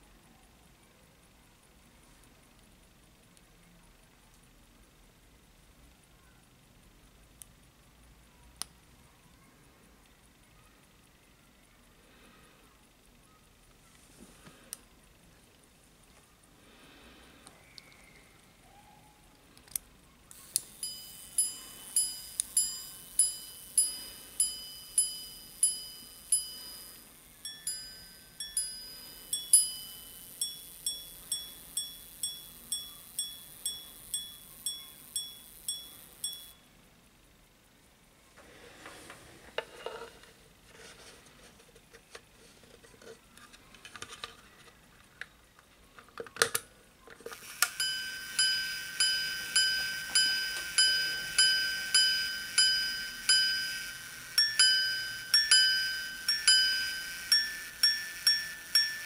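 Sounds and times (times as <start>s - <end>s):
knocks and scrapes of handling: 38.4s - 45.1s.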